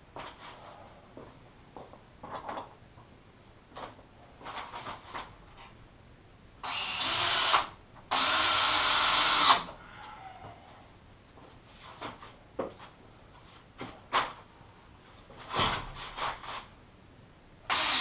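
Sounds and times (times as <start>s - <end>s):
cordless drill driving screws: 6.6s - 9.7s, 17.7s - 18.0s.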